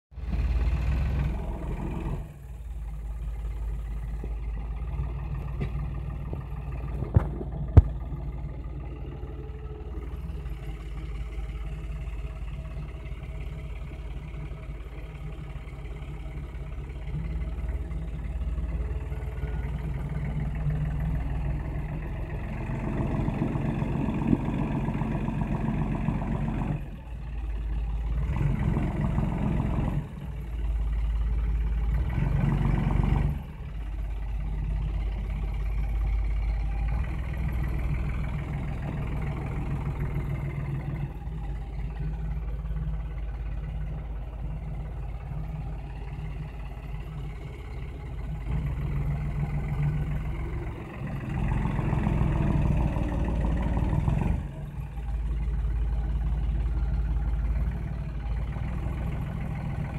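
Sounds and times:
tractor diesel engine under load: 0.0s - 59.9s.

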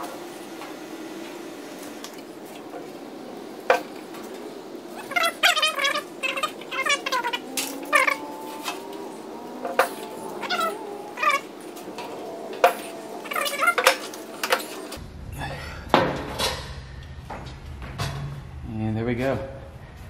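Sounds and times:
metal brake pivots squeaking: 9.6s - 15.0s.

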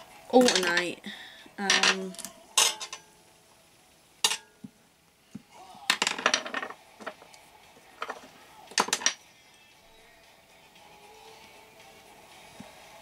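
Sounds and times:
metal hand tools clinking: 0.4s - 0.9s, 1.6s - 3.0s, 4.2s - 4.5s.

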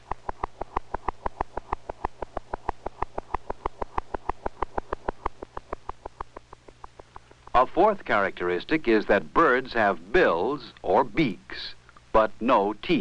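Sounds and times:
bird's fast heartbeat: 0.0s - 7.6s.

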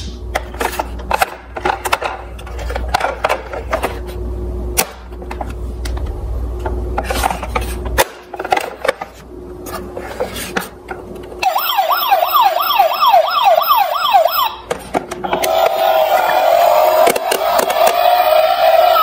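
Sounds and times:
electronic toy siren wailing: 11.4s - 14.7s, 15.3s - 19.0s.

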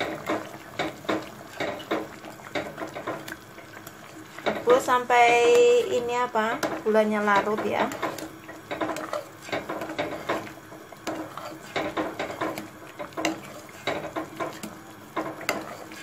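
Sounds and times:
metal spoon scraping a pot: 7.4s - 16.0s.

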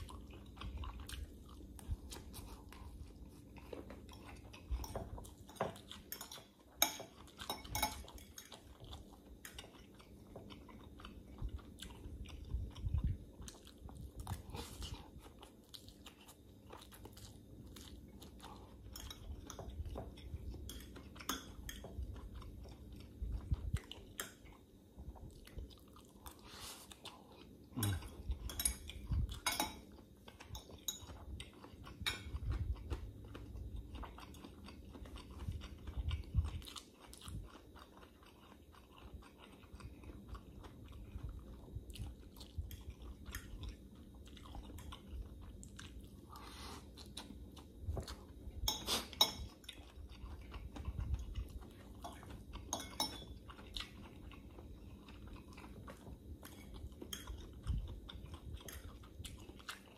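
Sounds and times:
fork clinking against glass bowl: 6.2s - 8.2s, 28.5s - 29.8s, 52.7s - 53.4s.

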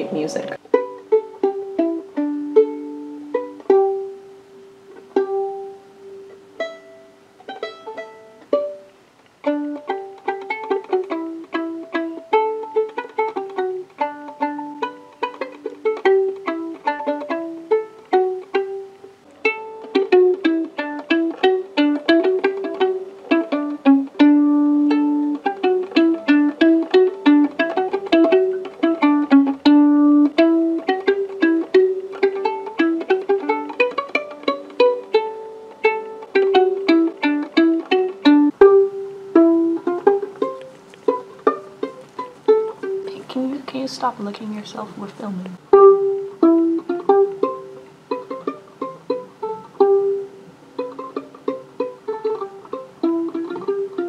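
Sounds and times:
violin plucked pizzicato: 0.0s - 43.9s, 45.0s - 54.0s.

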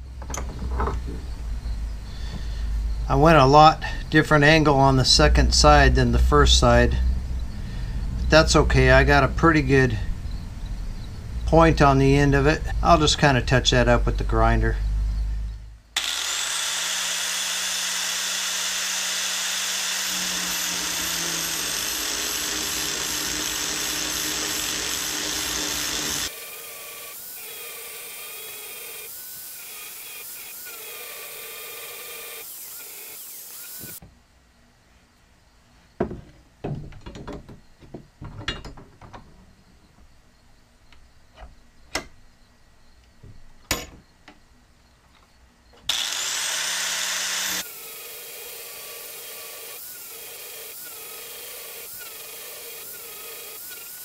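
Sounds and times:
angle grinder whining: 16.0s - 34.0s, 45.9s - 54.0s.

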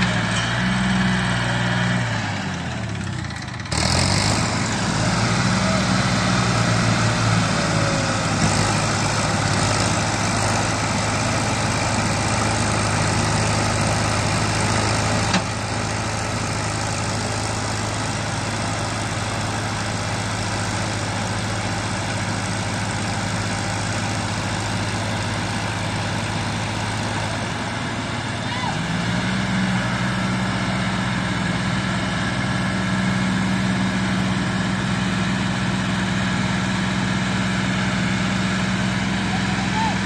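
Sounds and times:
diesel tractor engines running: 0.0s - 40.0s.

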